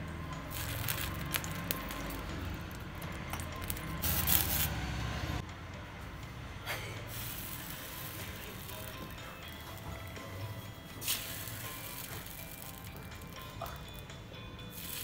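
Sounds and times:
water sizzling on hot iron griddle: 0.4s - 4.8s, 7.1s - 10.0s, 11.0s - 14.1s, 14.7s - 15.0s.

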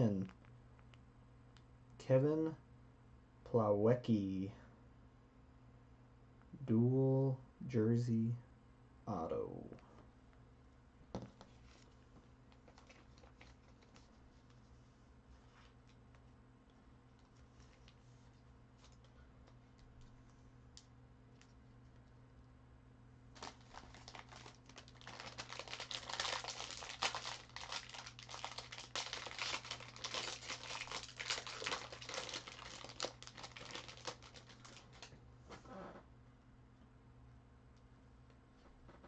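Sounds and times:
foil wrapper crinkling: 12.5s - 14.2s, 23.3s - 35.1s.

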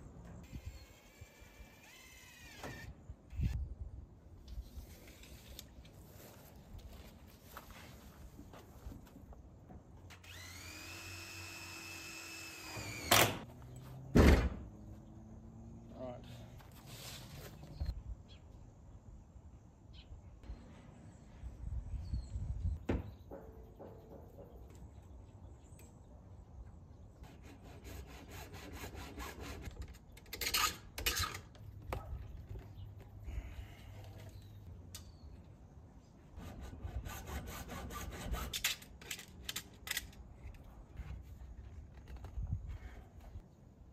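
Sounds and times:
cordless drill running: 0.5s - 2.9s, 10.1s - 13.2s
hacksaw sawing through plastic pipe: 27.3s - 29.8s, 36.4s - 38.8s.

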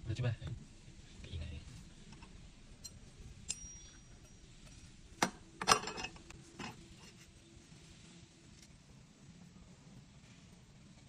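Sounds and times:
metal clinks: 2.8s - 4.9s.

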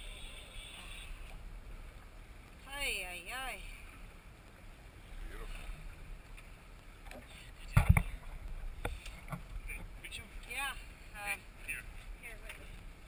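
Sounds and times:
wind and sea hiss: 0.0s - 13.0s.

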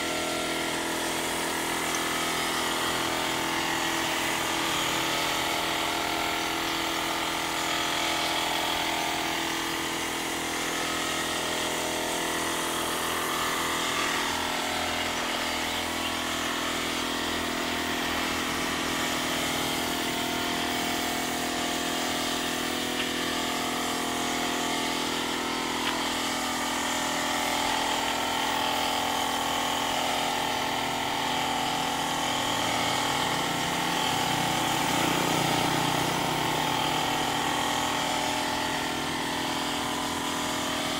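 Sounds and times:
air compressor humming: 0.0s - 40.9s.

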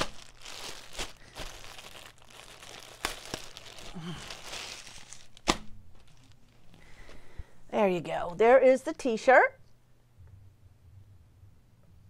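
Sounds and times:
packaging crinkling: 0.0s - 7.0s.

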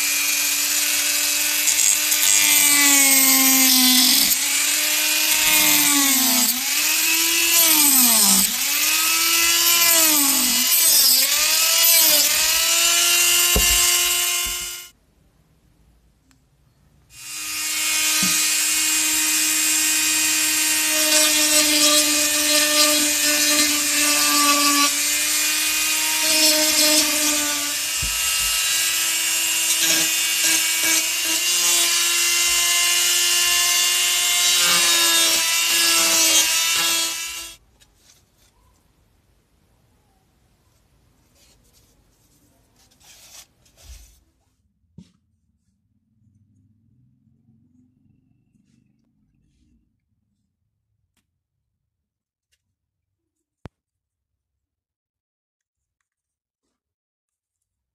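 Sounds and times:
rotary tool sanding pipe: 0.0s - 14.9s, 17.3s - 37.6s.

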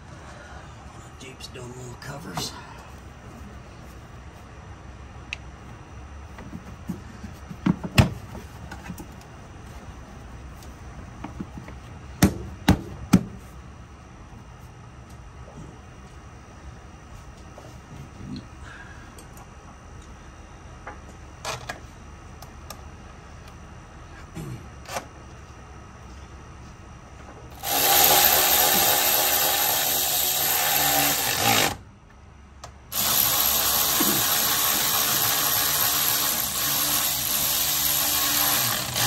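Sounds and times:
cordless power tool running bolts: 27.5s - 31.8s, 32.9s - 39.0s.

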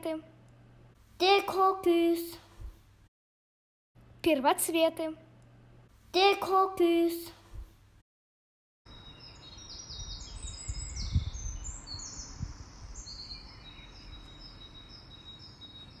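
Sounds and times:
songbirds chirping: 8.9s - 16.0s.

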